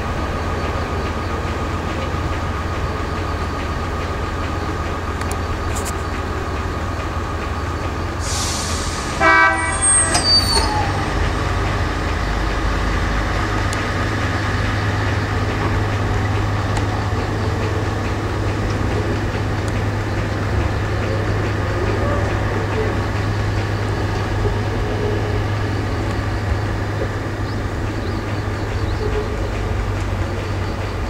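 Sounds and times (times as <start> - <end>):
locomotive engine rumble: 0.0 - 31.0
train horn toot: 9.2 - 11.0.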